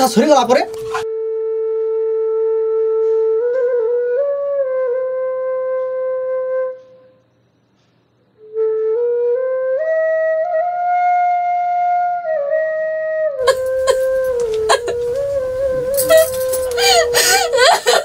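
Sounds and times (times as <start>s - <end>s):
slow solo melody: 13.4s - 18.0s.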